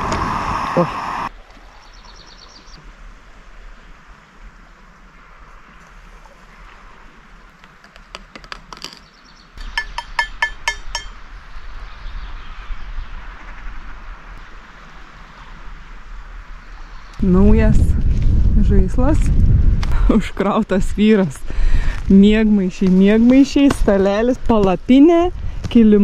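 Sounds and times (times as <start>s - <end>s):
faint outdoor hiss: 0.0s - 17.7s
metal spoon clinking against cup: 9.6s - 11.2s.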